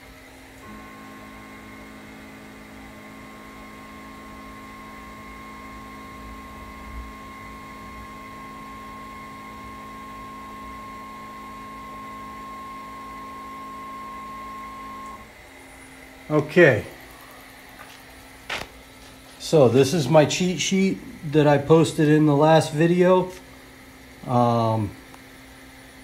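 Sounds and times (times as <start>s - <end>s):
stepper motors whining: 0.4s - 18.6s.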